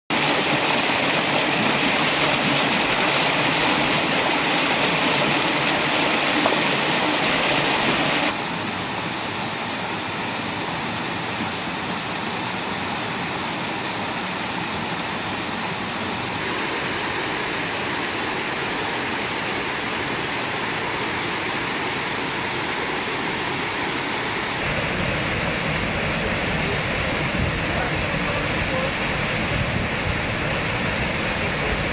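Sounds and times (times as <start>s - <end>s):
stream rushing over rocks: 0.1s - 31.9s
waterfall plunging into a pool: 0.1s - 31.9s.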